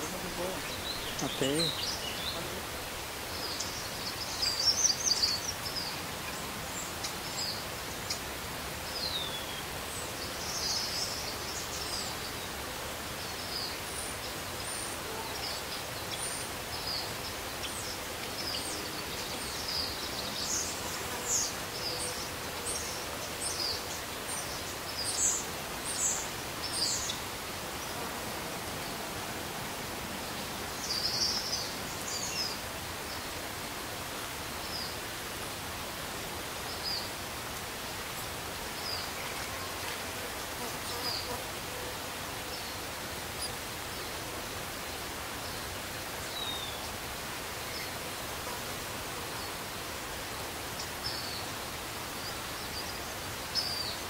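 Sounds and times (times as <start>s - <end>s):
steady background hiss: 0.0s - 54.0s.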